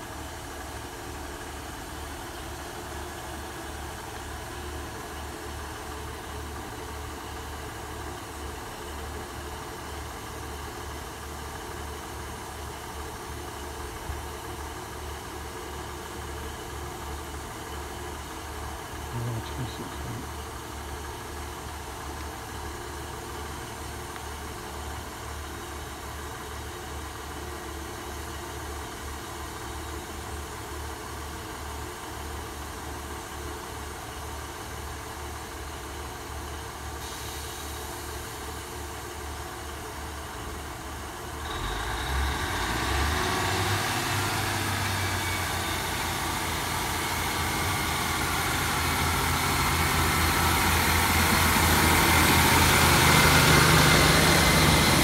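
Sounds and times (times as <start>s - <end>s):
diesel train engines idling: 0.0s - 55.0s
train pulling away: 36.9s - 55.0s.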